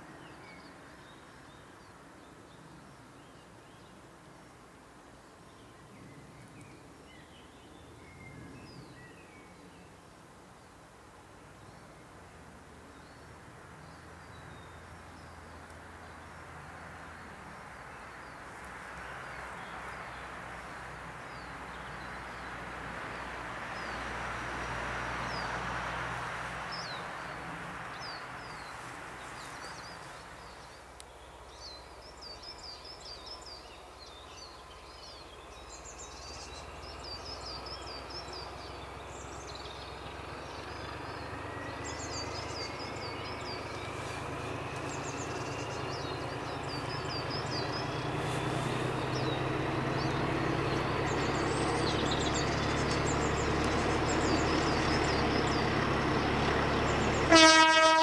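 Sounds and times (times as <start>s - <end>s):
birds chirping: 12.9s - 58.0s
diesel locomotive engine hum: 13.9s - 58.0s
rising engine whine: 38.6s - 57.3s.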